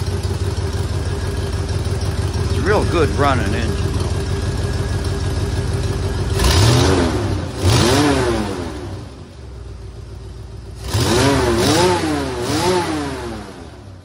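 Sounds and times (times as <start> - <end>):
lumpy engine idle: 0.0 - 6.8, 9.3 - 10.8
car engine revving: 2.1 - 9.2, 10.8 - 14.0.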